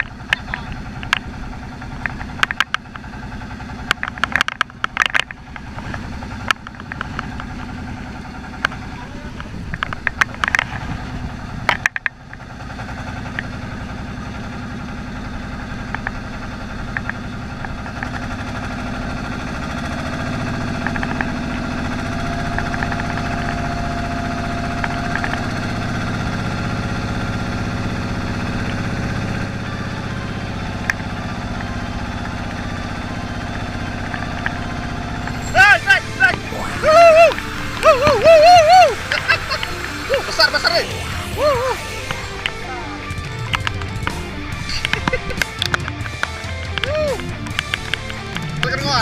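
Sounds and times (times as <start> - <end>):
boat engine running: 0.0 - 49.0.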